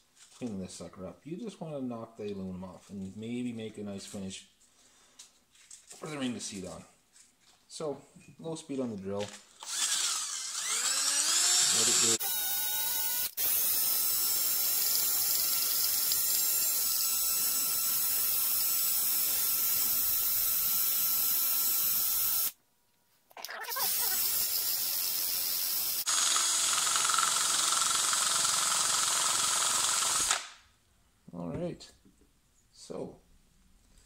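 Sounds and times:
cordless drill whirring: 9.6 - 22.6, 23.8 - 30.6.

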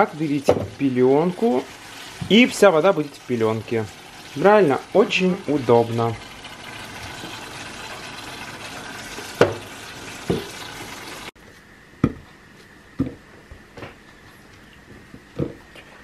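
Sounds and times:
steady kitchen hiss: 0.0 - 16.0.

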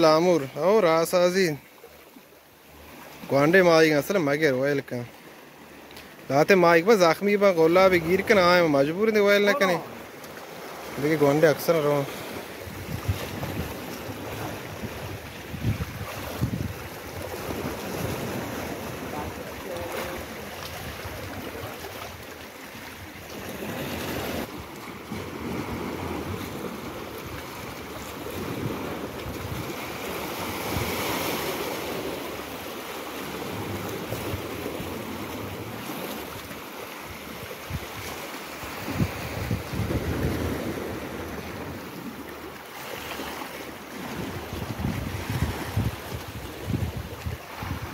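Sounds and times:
sea waves washing against rocks: 0.0 - 47.9
wind buffeting microphone: 12.6 - 21.9, 25.4 - 29.8, 38.8 - 41.8, 44.1 - 47.9.

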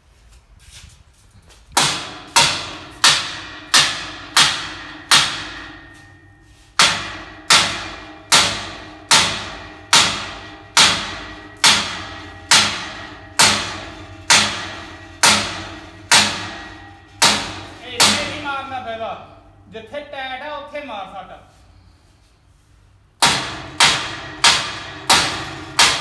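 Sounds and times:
hammer blows on steel grill: 1.7 - 19.7, 23.2 - 26.0.

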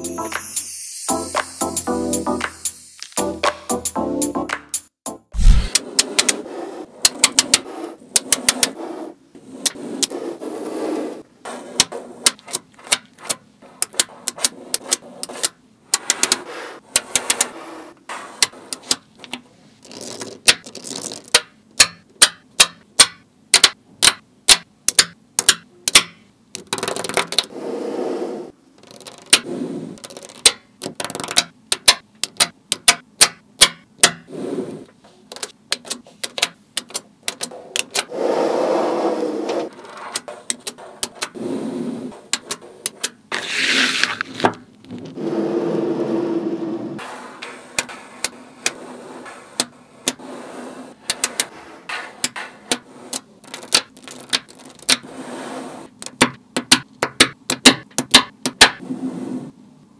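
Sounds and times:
magnetic balls clicking: 11.8 - 17.6, 18.4 - 27.5, 28.8 - 34.3, 35.3 - 38.1, 39.7 - 41.4, 42.3 - 43.3, 51.0 - 51.5, 52.2 - 55.0, 55.9 - 58.8
magnetic balls rattling: 28.8 - 32.9, 52.1 - 55.0.

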